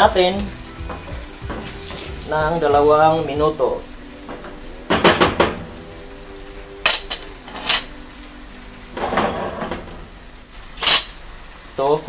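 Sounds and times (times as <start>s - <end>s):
pan clattering on hob grate: 0.8s - 3.0s, 4.2s - 5.8s, 9.0s - 10.1s.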